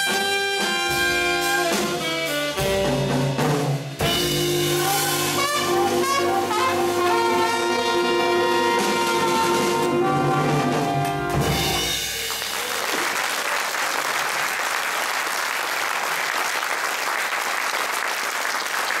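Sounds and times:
jazz band holding final chord: 0.0 - 12.3
audience applause: 12.0 - 19.0.

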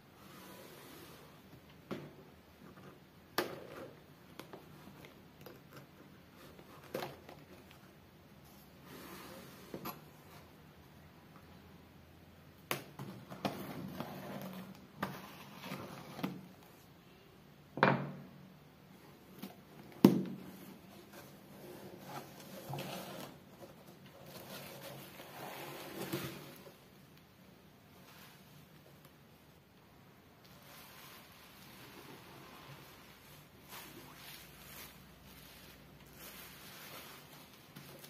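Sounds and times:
bubble wrap rustling: 30.4 - 38.0.

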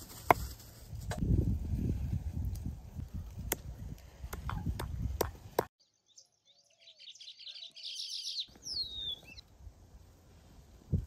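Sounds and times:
birds chirping: 5.8 - 9.4.

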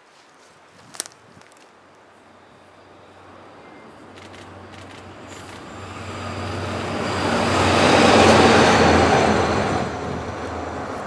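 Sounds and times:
locomotive passing by: 2.2 - 11.0.

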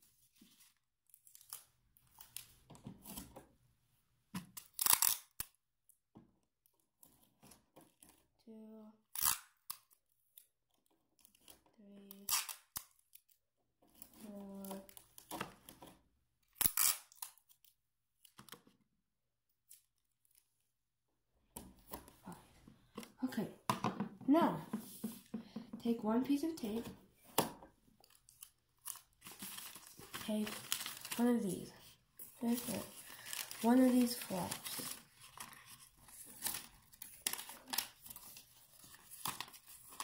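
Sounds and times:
sticky tape rustles and ticks: 0.2 - 3.5, 4.4 - 6.0, 9.1 - 18.8, 19.5 - 20.6, 27.4 - 40.0
sticky tape ripping: 4.6 - 5.6, 9.1 - 9.9, 12.1 - 13.1, 16.6 - 17.6.

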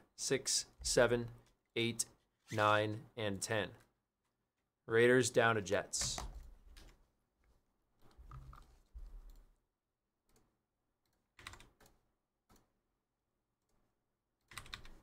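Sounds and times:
keyboard and mouse clicks: 8.0 - 9.5, 10.2 - 12.7, 14.4 - 15.0.

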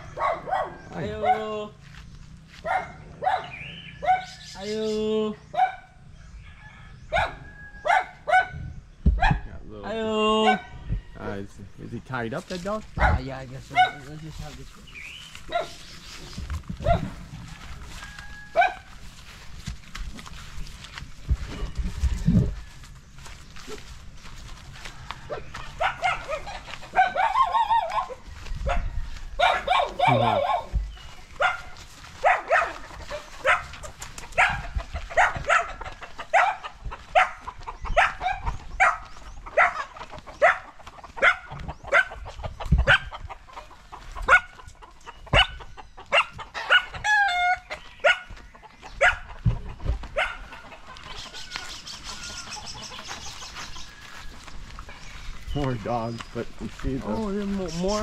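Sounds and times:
dog barking: 0.0 - 1.5, 2.6 - 4.4, 5.5 - 6.0, 7.1 - 9.5, 13.0 - 14.1, 15.5 - 15.8, 16.8 - 17.2, 18.6 - 18.9, 25.3 - 30.8, 31.4 - 42.2, 42.8 - 43.2, 44.3 - 44.6, 45.3 - 48.3, 49.0 - 49.3, 50.1 - 50.6
chickens clucking: 10.4 - 58.0.

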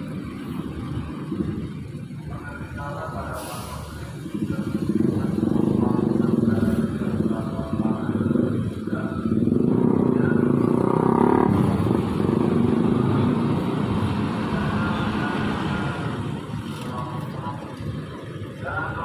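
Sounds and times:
car engines rumbling past: 0.0 - 19.0.

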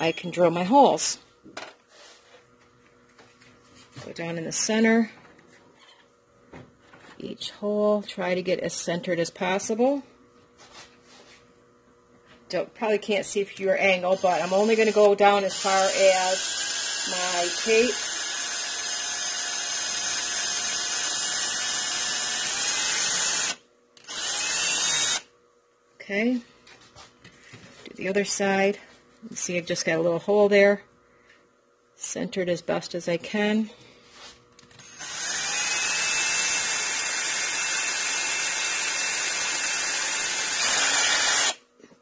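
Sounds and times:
electric drill boring into wood: 14.0 - 25.3, 34.8 - 41.6.

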